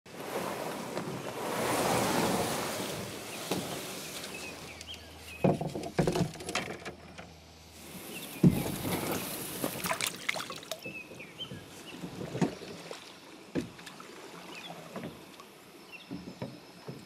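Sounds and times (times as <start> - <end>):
canoe scraping through reeds: 0.1 - 5.8, 7.7 - 10.3
hollow knocks on canoe: 5.3 - 6.9, 8.4 - 10.0, 10.8 - 13.9, 16.0 - 17.0.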